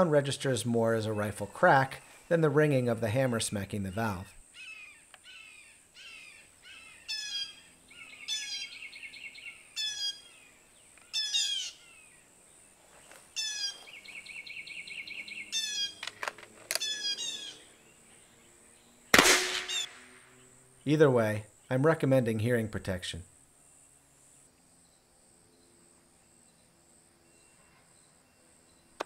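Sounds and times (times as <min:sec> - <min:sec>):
bird trilling: 0:04.0 - 0:12.2, 0:13.4 - 0:17.8, 0:19.2 - 0:20.4
hawk calling: 0:04.6 - 0:12.1, 0:13.4 - 0:17.7, 0:19.6 - 0:19.9
loud sharp bang: 0:19.2 - 0:20.1.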